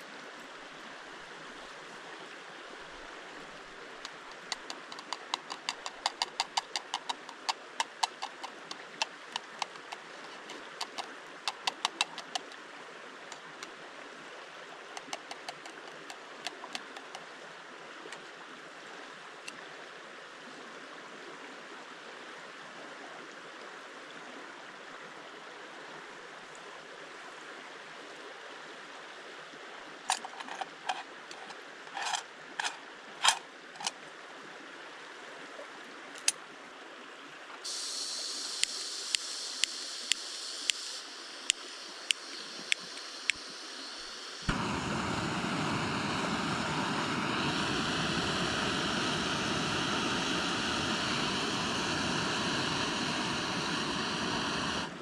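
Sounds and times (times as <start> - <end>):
stream flowing: 0.0 - 55.0
gas valve hissing: 4.0 - 12.6, 15.0 - 17.2, 37.6 - 55.0
igniter clicking: 4.0 - 12.6, 15.0 - 17.2
gas burner roaring: 4.2 - 9.9, 44.4 - 55.0.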